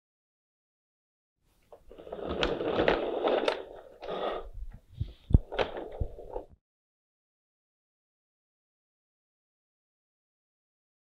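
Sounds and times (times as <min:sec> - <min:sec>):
toy truck wheels rumbling and rattling: 0:01.7 - 0:04.8, 0:05.4 - 0:06.5.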